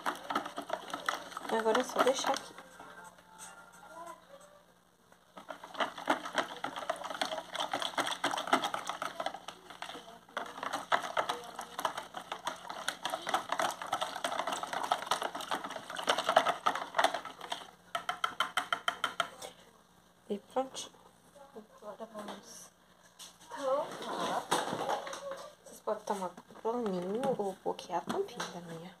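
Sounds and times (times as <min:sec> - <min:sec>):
whisk clicking against bowl: 0:00.0 - 0:02.6, 0:05.4 - 0:19.5.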